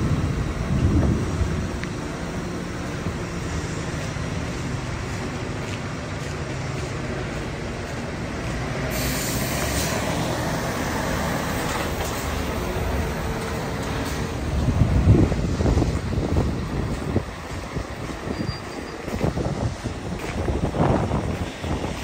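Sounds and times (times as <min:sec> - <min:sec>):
heavy diesel engines droning: 0:00.0 - 0:22.0
broad hiss: 0:08.8 - 0:14.4.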